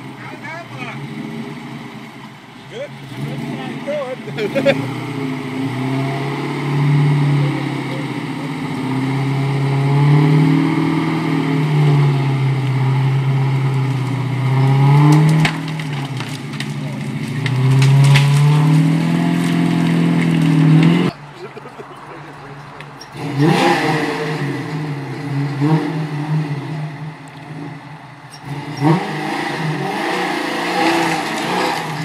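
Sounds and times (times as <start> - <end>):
truck engine revving under load: 0.0 - 32.0
branches snapping and crushing: 12.6 - 21.2, 30.6 - 32.0.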